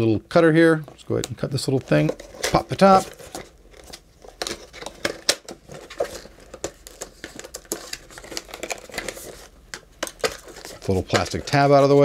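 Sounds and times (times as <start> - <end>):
packaging clicks and scrapes: 1.6 - 12.0
cardboard box rustling and crinkling: 1.8 - 9.5.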